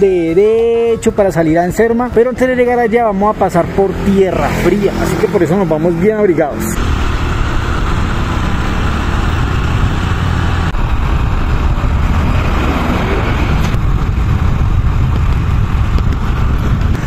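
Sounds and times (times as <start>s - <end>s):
motorcycle engine running: 0.0s - 17.0s
wind noise: 0.0s - 17.0s.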